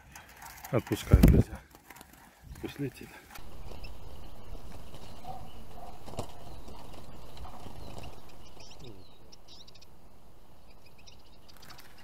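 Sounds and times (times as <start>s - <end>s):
small birds chirping: 0.0s - 12.0s
handling rumble: 3.0s - 12.0s.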